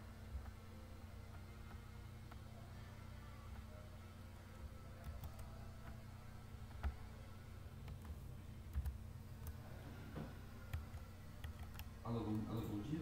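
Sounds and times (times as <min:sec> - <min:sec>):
low steady hum: 0:00.0 - 0:13.0
computer mouse clicks: 0:05.0 - 0:06.0, 0:07.8 - 0:09.6, 0:10.6 - 0:11.9
keyboard typing: 0:05.0 - 0:06.0, 0:06.7 - 0:07.0, 0:07.8 - 0:09.6, 0:10.6 - 0:12.4.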